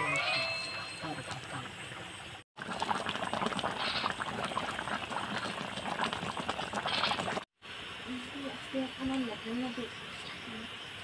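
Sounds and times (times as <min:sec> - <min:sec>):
curry bubbling and popping: 0:01.2 - 0:07.5.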